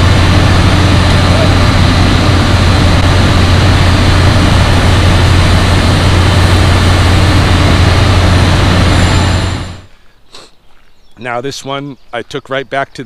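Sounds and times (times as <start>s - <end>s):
machinery and ventilation fans droning: 0.0s - 10.0s.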